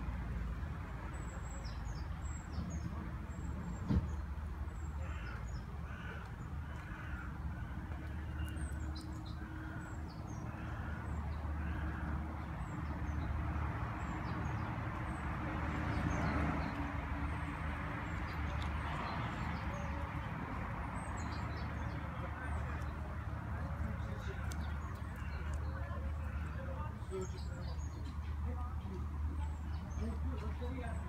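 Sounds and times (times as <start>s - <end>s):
small birds chirping: 14.0s - 31.0s.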